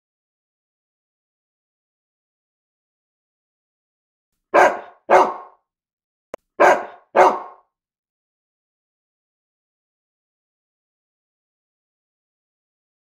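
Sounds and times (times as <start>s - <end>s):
dog barking: 4.5s - 5.6s, 6.6s - 7.6s.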